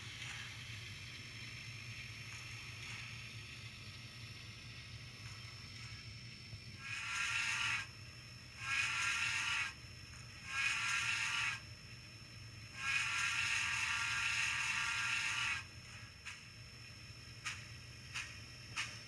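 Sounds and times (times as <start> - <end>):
low steady hum: 0.0 - 19.0
model train steam whistle: 6.8 - 7.9, 8.6 - 9.8, 10.4 - 11.6, 12.7 - 15.7.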